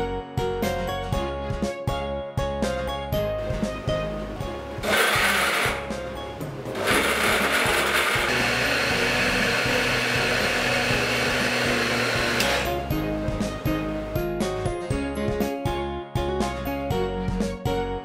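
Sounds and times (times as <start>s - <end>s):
blender running: 4.8s - 6.0s, 6.7s - 13.0s.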